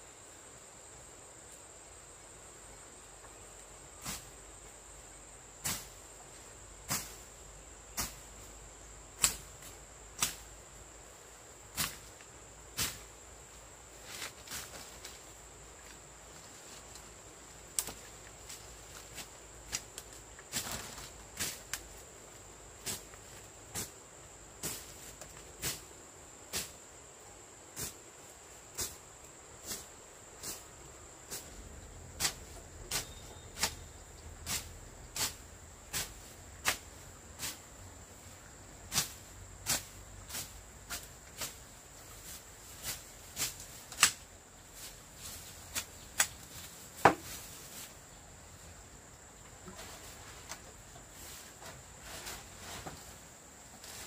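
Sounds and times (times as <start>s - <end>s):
high insect drone: 0.0s - 54.0s
machete chopping brush: 4.0s - 4.4s, 5.6s - 6.0s, 6.8s - 7.3s, 7.9s - 8.5s, 9.2s - 10.5s, 11.7s - 12.1s, 12.8s - 13.1s, 17.7s - 21.9s, 22.8s - 23.9s, 24.6s - 25.8s, 26.5s - 26.8s, 27.8s - 28.0s, 28.7s - 29.0s, 29.6s - 30.6s, 31.3s - 31.6s, 32.2s - 37.6s, 38.9s - 44.2s, 44.8s - 47.9s
rustling brush: 13.8s - 22.1s, 29.6s - 38.3s, 38.9s - 48.7s, 49.4s - 54.0s.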